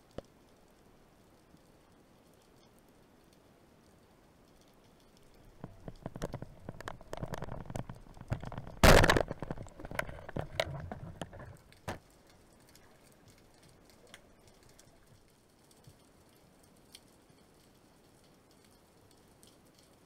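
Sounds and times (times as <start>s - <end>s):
faint ticking in water: 0.0s - 20.0s
underwater clicks and knocks: 5.5s - 12.0s.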